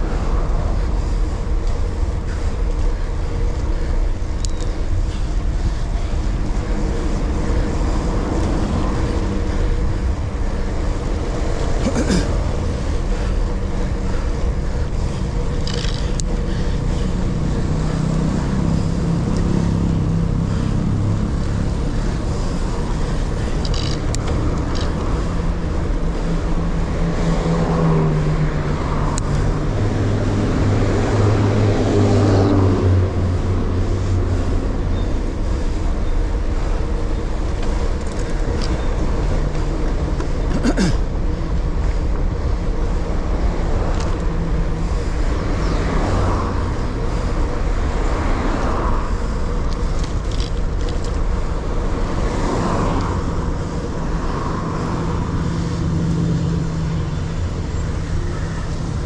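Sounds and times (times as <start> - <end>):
motor vehicle engine hum: 0.0 - 59.0
wind rushing over microphone: 41.1 - 59.0.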